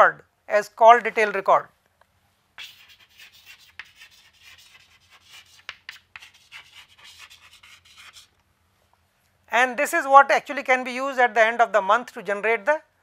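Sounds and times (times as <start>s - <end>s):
chalk scratching on chalkboard: 2.6s - 8.3s
chalk tapping: 2.6s - 8.3s.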